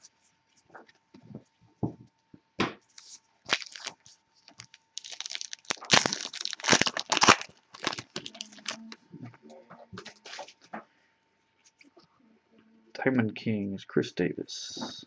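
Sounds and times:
wrapper tearing and crinkling: 3.0s - 9.0s.

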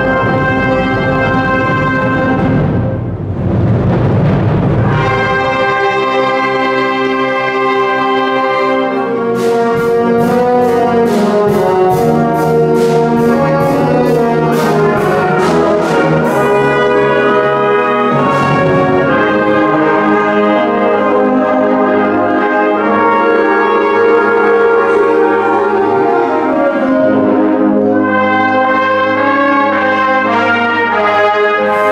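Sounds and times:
wind band playing chords: 0.0s - 31.9s
sharp percussion strokes: 9.4s - 20.3s.

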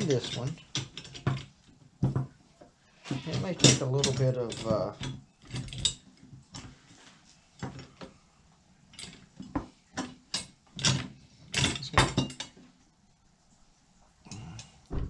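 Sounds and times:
metal parts knocking: 0.0s - 2.3s, 3.1s - 6.1s, 9.0s - 12.6s.

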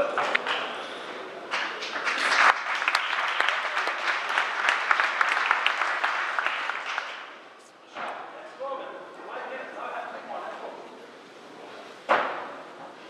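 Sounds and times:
audience applauding: 1.5s - 7.4s.

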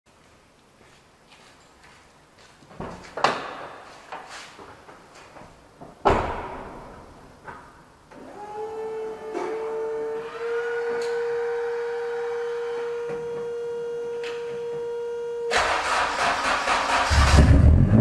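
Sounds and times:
supercharged engine whine: 8.2s - 15.8s.

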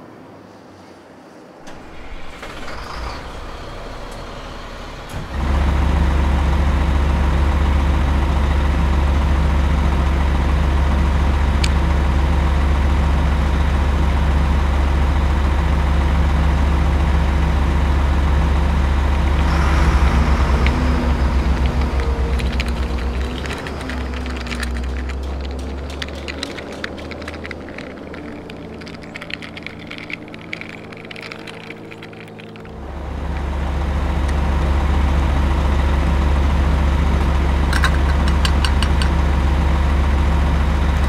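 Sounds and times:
diesel truck engine idling: 1.7s - 41.0s
handling noise: 19.4s - 33.5s, 37.6s - 39.2s.

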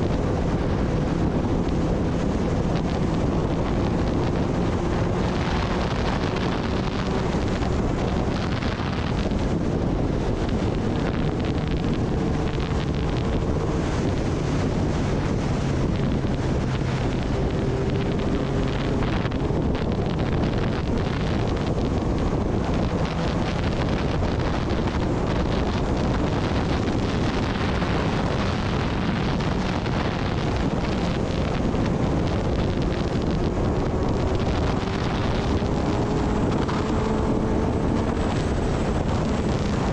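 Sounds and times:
motorcycle engine running: 0.0s - 39.9s
wind noise on microphone: 0.0s - 39.9s.

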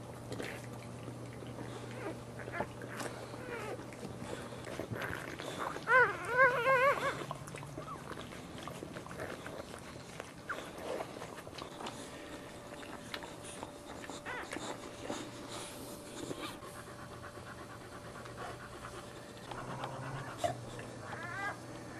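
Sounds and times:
wet licking: 0.2s - 21.9s
puppy squealing: 5.0s - 8.2s, 19.6s - 21.6s.

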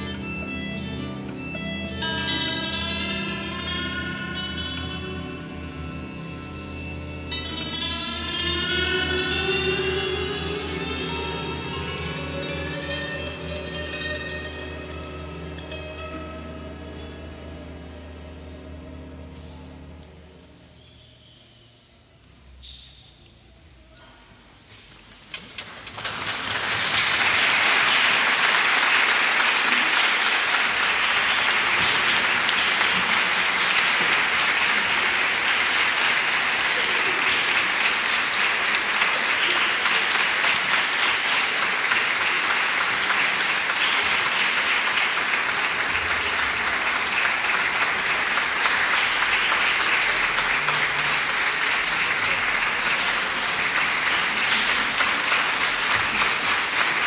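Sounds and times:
audience applauding: 25.6s - 57.0s.

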